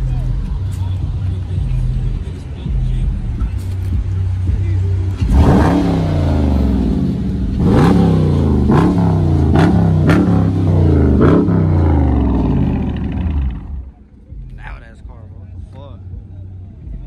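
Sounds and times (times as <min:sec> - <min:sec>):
car engine idling: 0:00.0 - 0:17.0
engine revving: 0:05.0 - 0:14.0.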